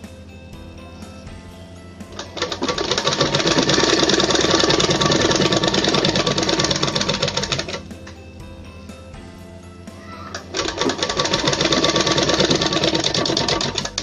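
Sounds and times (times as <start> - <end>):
sewing machine running fast: 2.2 - 7.8, 10.4 - 14.0.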